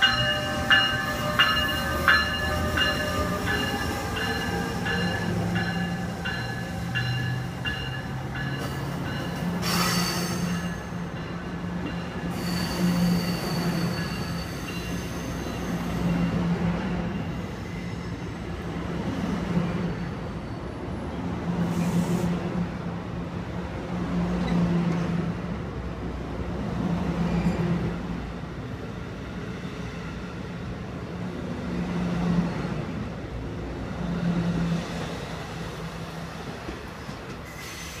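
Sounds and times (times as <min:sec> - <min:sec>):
train wheels rumbling on rails: 0:00.0 - 0:38.0.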